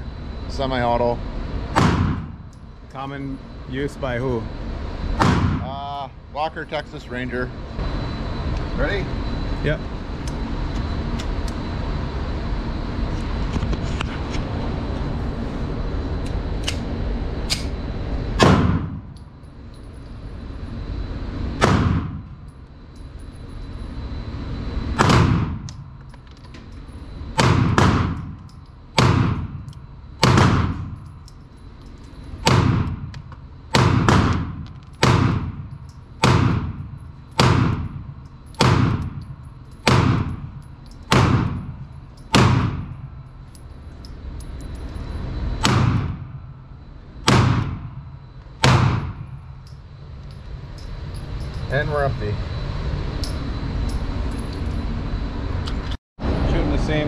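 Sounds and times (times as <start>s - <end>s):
pistol shots with echo: 1.8s - 2.3s, 27.4s - 28.2s, 29.0s - 29.6s, 30.2s - 30.9s, 33.8s - 35.6s, 36.2s - 36.7s, 37.4s - 37.9s, 39.9s - 40.3s, 41.1s - 41.6s, 42.4s - 42.9s, 45.6s - 46.2s, 47.3s - 47.8s, 48.6s - 49.2s.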